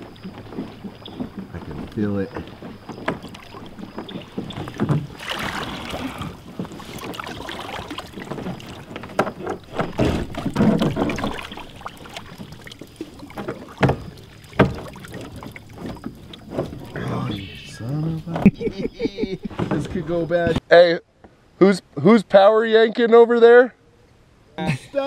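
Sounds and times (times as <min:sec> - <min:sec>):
knocks against kayak hull: 0:00.0 - 0:16.9
water sloshing: 0:00.0 - 0:20.5.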